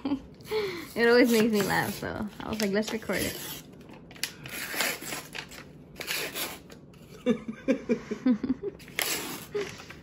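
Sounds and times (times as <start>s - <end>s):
paper wrapper tearing: 1.3s - 6.8s, 8.8s - 9.6s.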